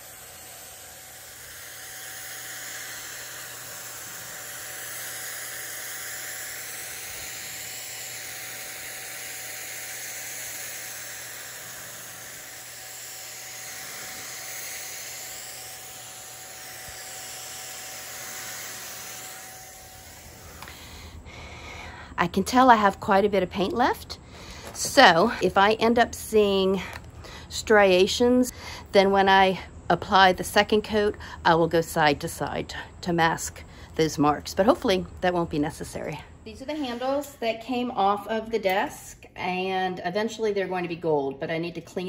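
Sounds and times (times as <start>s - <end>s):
paint sprayer hissing: 0.0s - 21.2s
paint sprayer motor tone: 0.0s - 21.8s.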